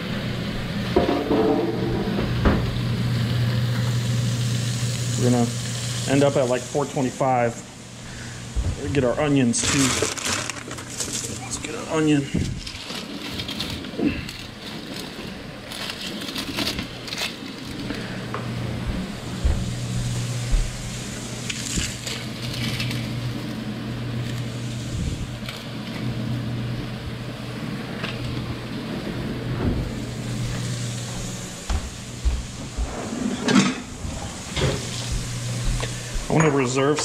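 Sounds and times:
steady low hum: 0:00.0 - 0:09.8, 0:10.6 - 0:37.0
kitchen drawer: 0:09.5 - 0:13.9, 0:32.9 - 0:35.0.

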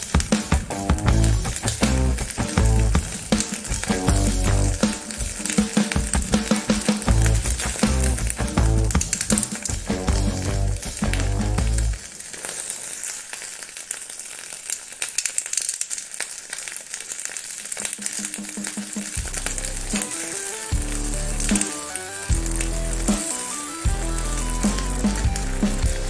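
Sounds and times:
music with bass beat: 0:00.0 - 0:12.0, 0:19.2 - 0:26.0
hot metal sizzling in eggs: 0:00.0 - 0:26.0.

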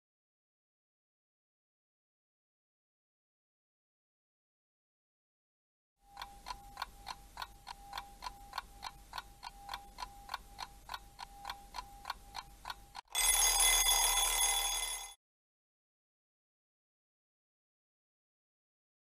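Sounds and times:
clock ticking: 0:06.0 - 0:13.6
alarm clock bell ringing: 0:13.1 - 0:15.2.

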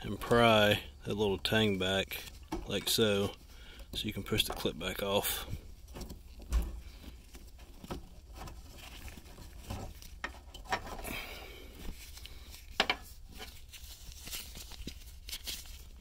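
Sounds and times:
gloved hands handling parts: 0:00.0 - 0:16.0.

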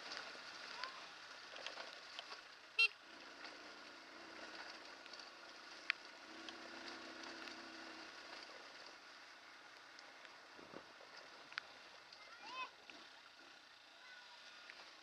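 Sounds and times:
small clicks and rattles: 0:00.0 - 0:02.6
motorcycle engine running: 0:00.0 - 0:15.0.

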